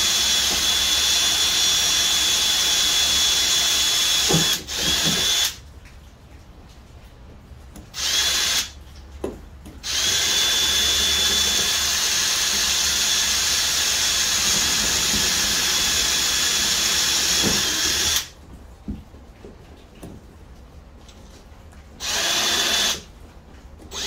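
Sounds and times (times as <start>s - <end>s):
cordless drill boring: 0.0s - 5.6s, 8.0s - 8.8s, 9.8s - 18.3s, 22.0s - 23.1s.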